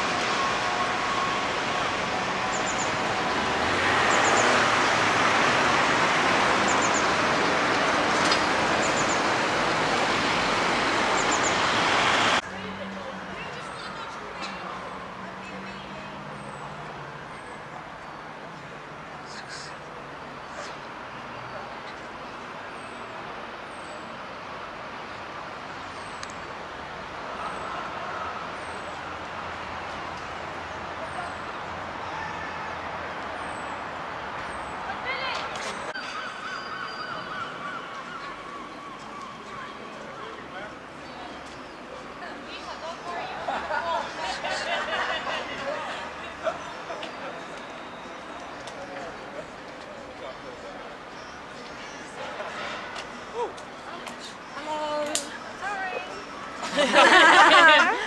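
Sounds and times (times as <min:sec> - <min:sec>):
vehicle passing: 0:00.0 - 0:19.8
road traffic hum: 0:00.0 - 0:58.0.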